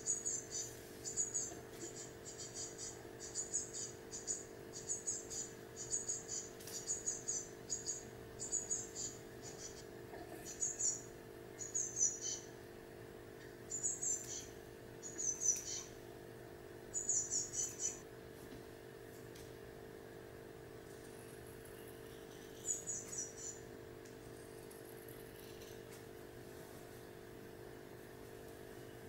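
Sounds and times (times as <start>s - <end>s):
nestlings begging chirps: 0.0s - 12.6s, 13.7s - 16.0s, 16.9s - 18.0s, 21.7s - 23.7s
steady low hum: 0.0s - 29.0s.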